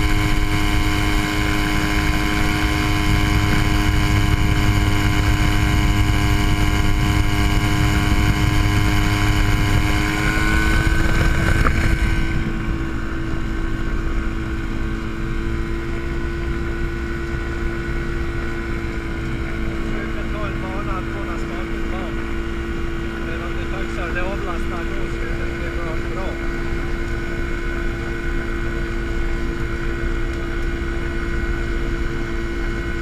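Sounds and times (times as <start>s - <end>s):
light aircraft engine and propeller: 0.0s - 33.0s.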